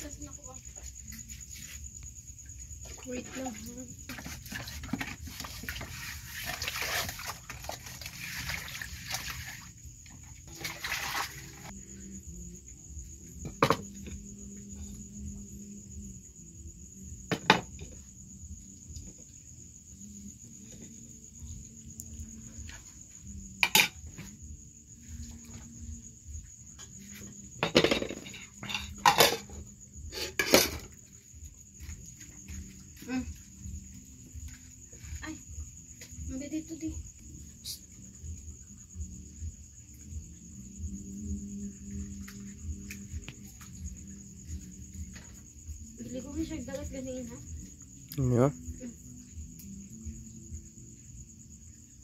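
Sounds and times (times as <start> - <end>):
water swishing in metal basin: 3.2 - 11.8.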